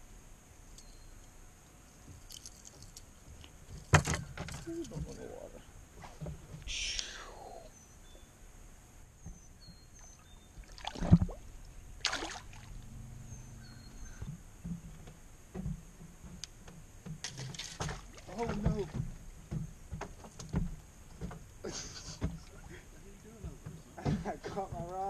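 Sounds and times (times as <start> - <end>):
faint bird chirps: 6.7 - 8.5, 9.1 - 10.7, 12.8 - 14.4
fish splashing into water: 10.6 - 11.4, 12.0 - 12.8.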